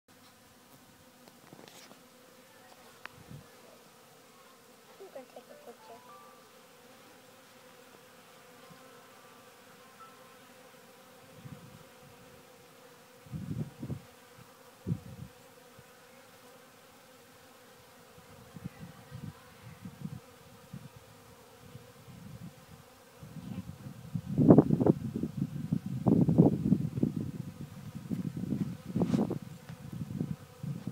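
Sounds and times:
bees buzzing: 0:00.1 - 0:30.9
wind gusts on microphone: 0:03.1 - 0:03.6, 0:11.2 - 0:12.4, 0:13.2 - 0:15.4, 0:18.2 - 0:30.9.

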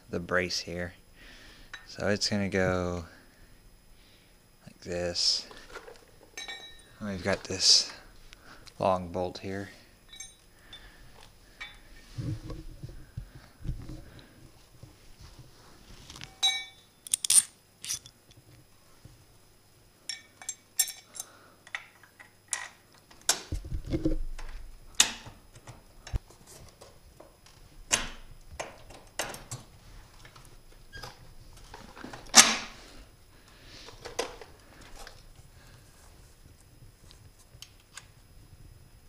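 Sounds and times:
metal parts clinking and clanking: 0:05.6 - 0:06.9, 0:10.1 - 0:10.9, 0:16.1 - 0:18.2, 0:20.1 - 0:22.8.

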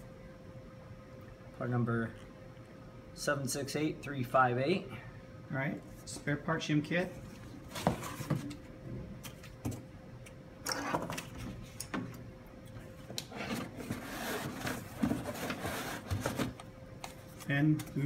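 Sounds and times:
cardboard rustling and scraping: 0:07.4 - 0:08.6, 0:13.3 - 0:16.6.

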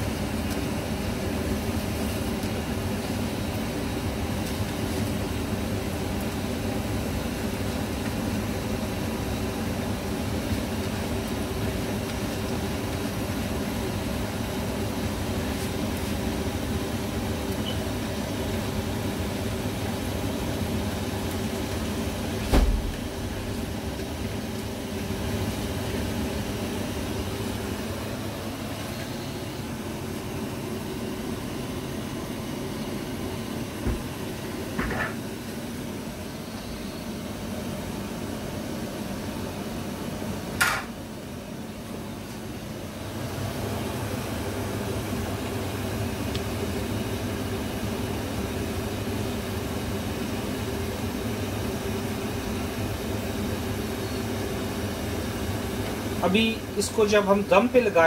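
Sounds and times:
range hood fan running: 0:00.0 - 0:58.0
water boiling in a pot: 0:00.0 - 0:58.0
sharp knocks against pot: 0:40.6 - 0:40.9.

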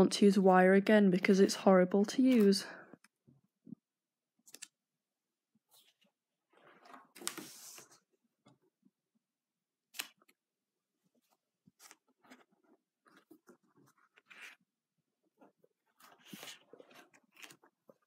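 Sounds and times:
paper rustling: 0:05.7 - 0:08.1, 0:15.5 - 0:18.0
paper pages swishing: 0:06.7 - 0:08.0, 0:15.9 - 0:17.7.

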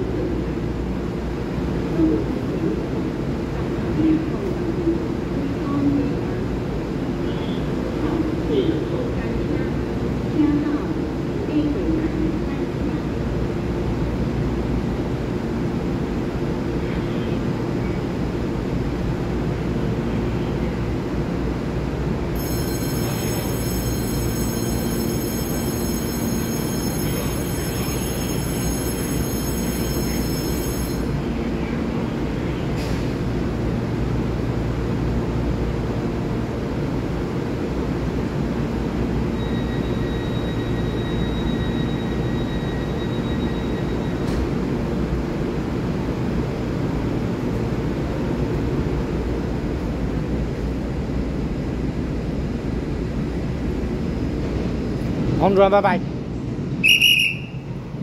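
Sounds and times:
train equipment humming: 0:17.1 - 0:53.8, 0:56.4 - 0:58.0.

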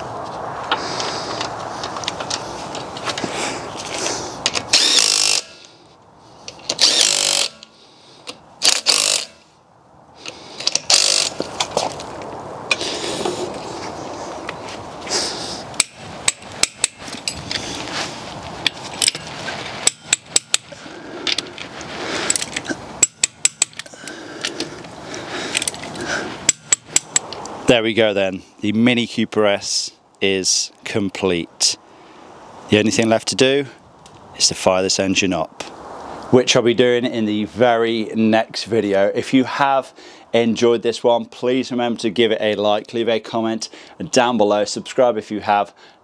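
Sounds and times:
torque wrench clicking: 0:04.5 - 0:05.7, 0:06.6 - 0:07.7, 0:08.3 - 0:09.4, 0:10.6 - 0:11.4, 0:19.8 - 0:20.8, 0:22.3 - 0:24.2
impact wrench bursts: 0:04.7 - 0:05.7, 0:06.7 - 0:07.7, 0:08.6 - 0:09.4, 0:10.6 - 0:11.5, 0:15.8 - 0:17.0, 0:19.8 - 0:20.8, 0:22.3 - 0:24.0, 0:26.4 - 0:27.2.

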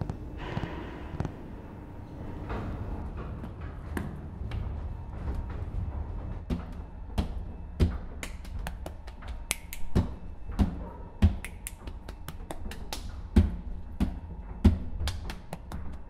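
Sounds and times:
finger snaps: 0:08.2 - 0:10.0, 0:11.4 - 0:13.1.

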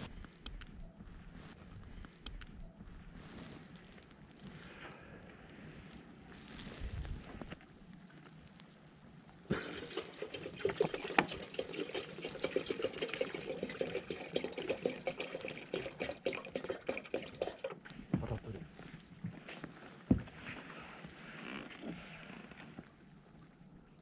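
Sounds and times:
water pouring and splashing: 0:09.5 - 0:19.2.

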